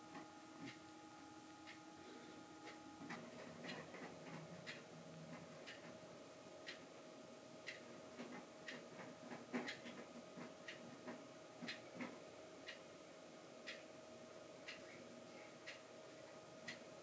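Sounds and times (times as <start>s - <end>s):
low steady hum: 0.0s - 17.0s
clock ticking: 3.6s - 4.8s, 5.6s - 5.9s, 6.6s - 6.8s, 7.6s - 7.8s, 8.6s - 8.8s, 9.6s - 10.0s, 10.6s - 11.8s, 13.6s - 13.8s, 14.6s - 14.8s, 15.6s - 15.8s, 16.6s - 16.9s.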